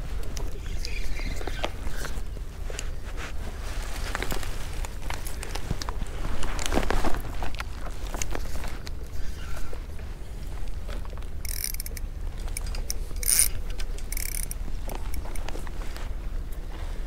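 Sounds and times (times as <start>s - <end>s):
steady low rumble: 0.0s - 17.0s
fishing reel gears whirring: 11.4s - 12.0s, 12.6s - 13.5s, 14.1s - 15.3s.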